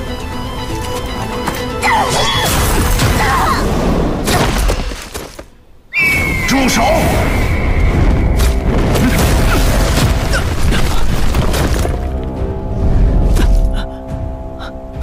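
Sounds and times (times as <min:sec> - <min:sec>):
dramatic background music: 0:00.0 - 0:04.4, 0:06.8 - 0:15.0
deep rumbling boom: 0:07.0 - 0:13.4.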